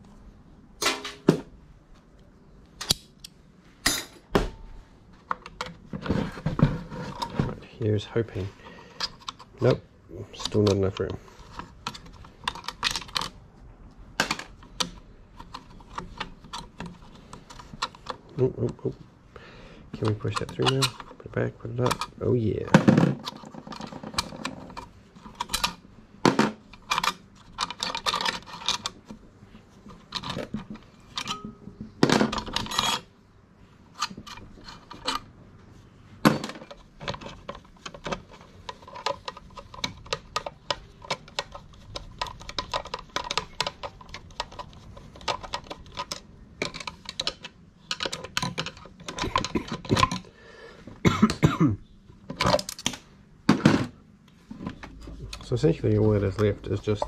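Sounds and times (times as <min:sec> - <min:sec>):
metal parts clinking and scraping: 0:08.3 - 0:13.4, 0:20.0 - 0:25.8, 0:26.7 - 0:29.1, 0:29.8 - 0:33.1, 0:33.9 - 0:35.4, 0:36.3 - 0:50.3, 0:52.3 - 0:53.0.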